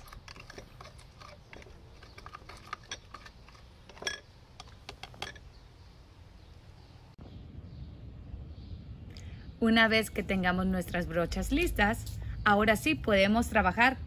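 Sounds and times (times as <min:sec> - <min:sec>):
plastic spoon stirring mud in cup: 0:00.0 - 0:05.4.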